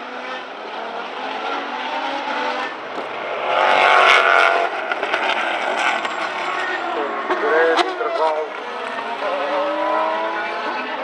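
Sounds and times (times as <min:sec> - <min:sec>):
racing car engines passing: 0:00.0 - 0:11.0.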